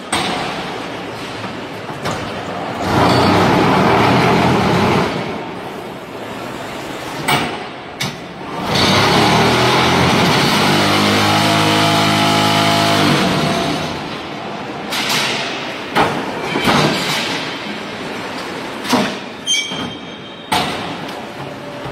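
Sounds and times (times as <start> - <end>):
loud machine hum: 2.7 - 6.9, 8.4 - 14.9.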